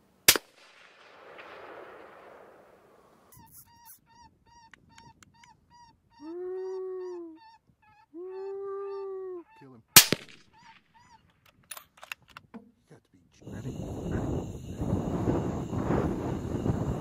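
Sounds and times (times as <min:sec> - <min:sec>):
short high squeaks: 0:03.3 - 0:05.6
long wailing call: 0:03.4 - 0:09.8.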